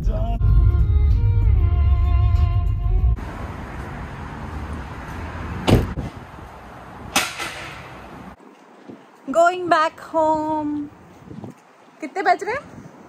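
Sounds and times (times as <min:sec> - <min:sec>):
car doors shutting: 0:05.6 - 0:06.2.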